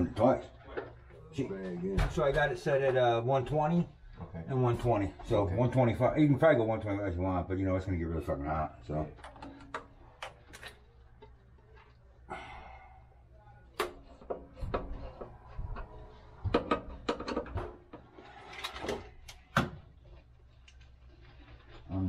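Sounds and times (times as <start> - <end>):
sheet-metal covers clicking and knocking: 13.8 - 19.8
screwdriver at work: 16.5 - 19.7.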